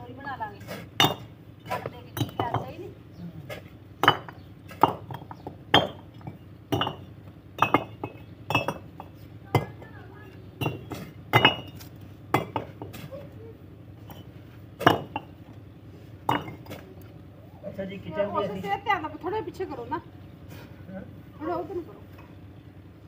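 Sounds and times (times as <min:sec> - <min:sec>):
bricks clinking together: 0:00.9 - 0:02.7, 0:03.6 - 0:09.9, 0:10.6 - 0:13.1, 0:14.0 - 0:15.4, 0:16.3 - 0:16.9.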